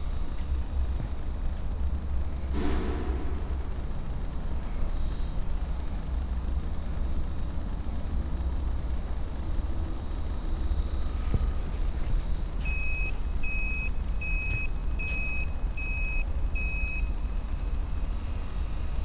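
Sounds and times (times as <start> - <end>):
steady low rumble: 0.0 - 16.6.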